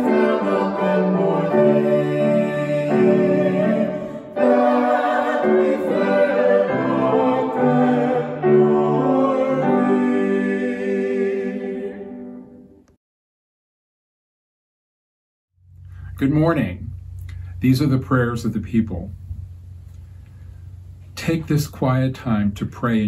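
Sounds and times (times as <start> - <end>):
woman and man singing a hymn: 0.0 - 12.2
piano accompaniment: 0.0 - 12.8.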